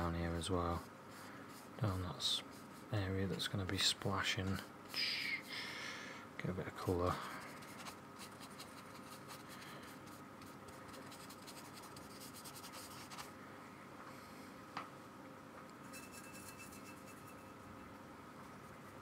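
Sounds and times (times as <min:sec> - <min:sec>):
paintbrush scratching on paper: 0:00.7 - 0:03.4, 0:07.3 - 0:13.3, 0:15.9 - 0:17.6.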